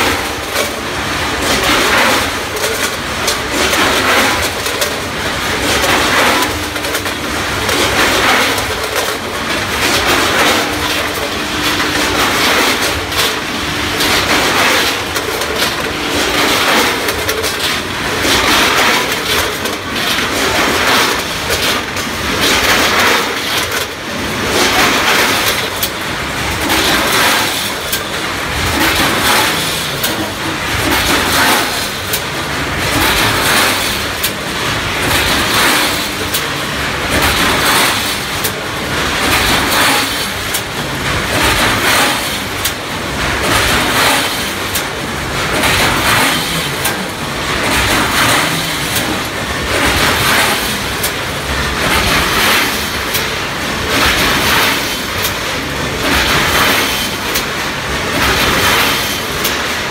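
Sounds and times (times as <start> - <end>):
filling machine clatter: 0.0 - 59.9
sharp machine clicks: 43.4 - 55.4.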